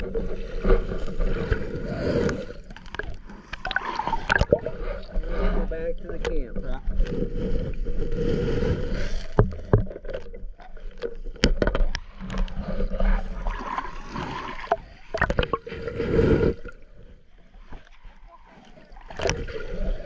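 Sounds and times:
muffled underwater water noise: 0:00.0 - 0:20.0
sharp clicks and knocks: 0:09.4 - 0:12.6.

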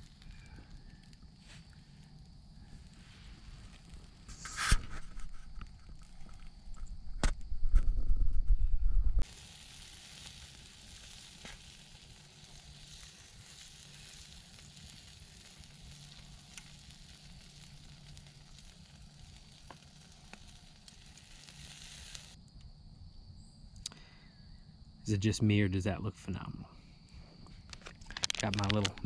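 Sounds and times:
meat sizzling on a grill: 0:00.0 - 0:06.6, 0:09.2 - 0:22.4.

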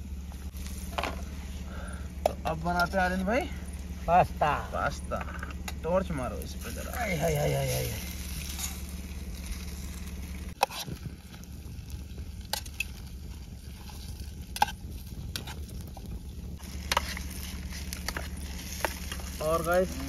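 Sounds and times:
pasta sizzling in a pan: 0:06.5 - 0:20.0.

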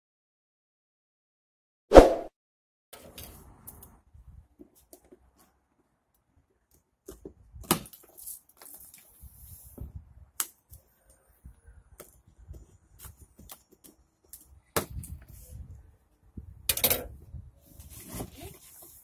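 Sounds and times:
wind rumbling on microphone: 0:03.4 - 0:04.6, 0:09.2 - 0:10.4, 0:14.8 - 0:18.6
rough scrape of cardboard box: 0:17.7 - 0:19.0.

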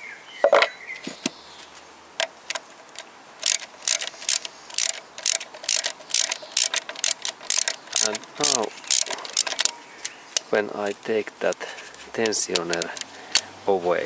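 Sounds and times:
ratchet wrench clicking: 0:03.4 - 0:10.2, 0:12.2 - 0:13.4.

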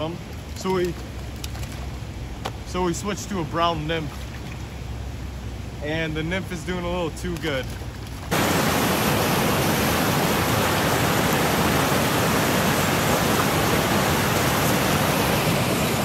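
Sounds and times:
fast-flowing creek water: 0:08.3 - 0:16.0.

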